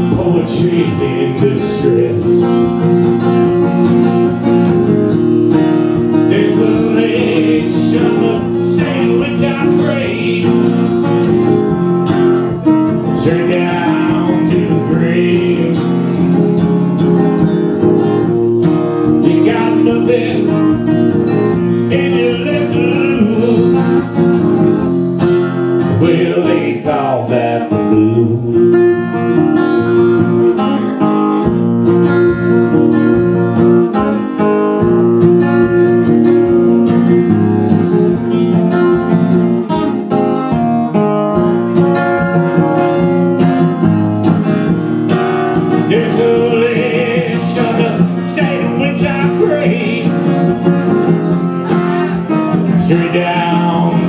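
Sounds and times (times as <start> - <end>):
man singing: 0.0 - 2.9, 6.0 - 11.6, 12.6 - 17.0, 18.6 - 30.6, 45.5 - 54.0
acoustic guitar strumming: 0.0 - 54.0.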